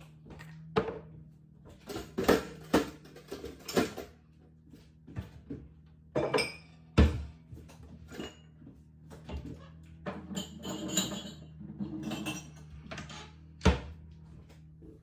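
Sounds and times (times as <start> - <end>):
dishes and kitchenware clinking: 0.4 - 4.2, 6.1 - 14.1.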